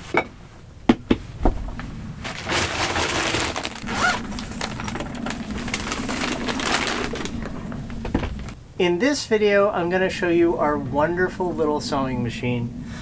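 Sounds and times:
plastic bag rustling: 1.6 - 8.6.

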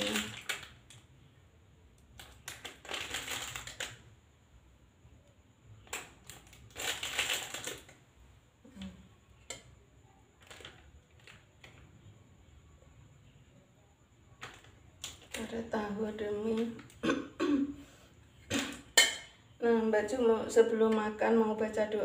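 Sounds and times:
paper wrapper crackling: 0.0 - 0.8, 2.2 - 4.0, 6.0 - 8.0.

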